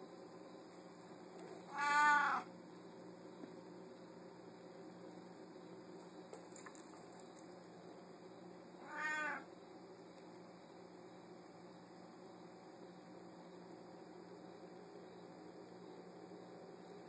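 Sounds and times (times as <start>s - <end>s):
cat meowing: 1.7s - 2.5s, 8.8s - 9.5s.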